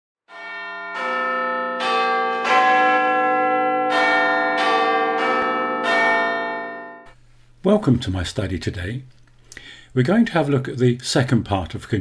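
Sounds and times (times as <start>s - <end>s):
bells chiming slow tune: 0.3s - 7.1s.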